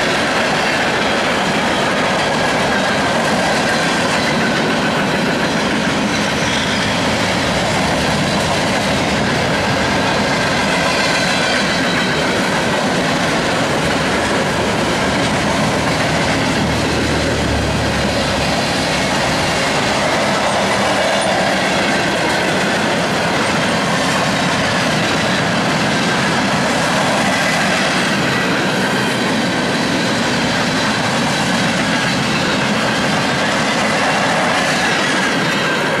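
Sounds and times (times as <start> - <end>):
freight train wheels rumbling: 0.0 - 36.0.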